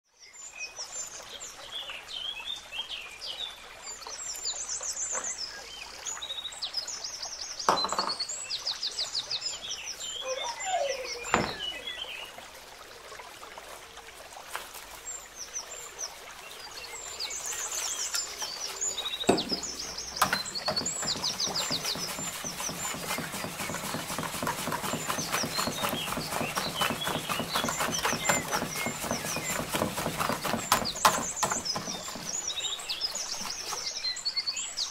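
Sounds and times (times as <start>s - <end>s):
small birds chirping: 0.2s - 12.4s, 14.9s - 34.9s
knocks: 7.7s - 8.2s, 11.3s - 11.7s, 19.3s - 32.3s
whisk beating batter in bowl: 20.2s - 32.3s.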